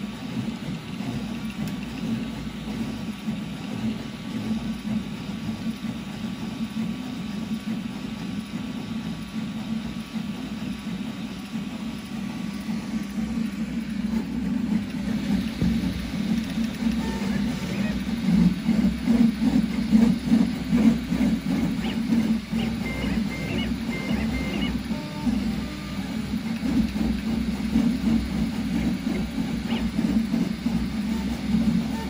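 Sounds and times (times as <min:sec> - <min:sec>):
printer stepper motors buzzing: 0:00.0 - 0:32.0.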